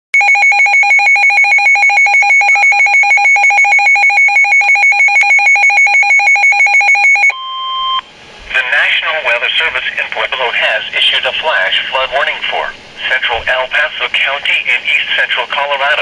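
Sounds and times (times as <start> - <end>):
shrill rapid alarm beeping: 0.2 - 8.0.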